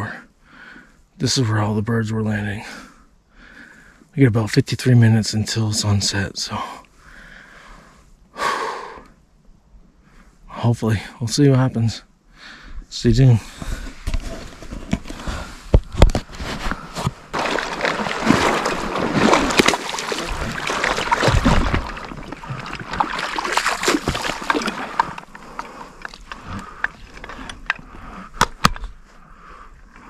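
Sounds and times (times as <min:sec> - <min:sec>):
splashing through water: 0:17.3 - 0:27.3.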